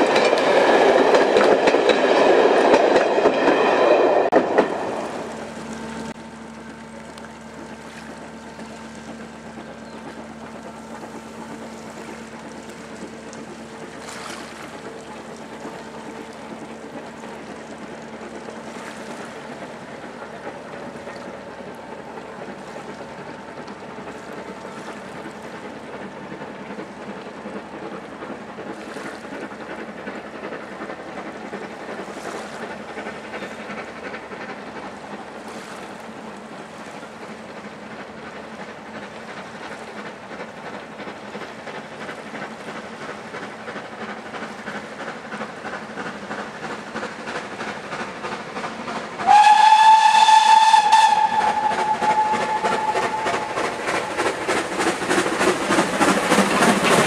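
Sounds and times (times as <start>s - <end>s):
steam locomotive chuffing: 0.0s - 57.0s
train coaches running noise: 0.0s - 57.0s.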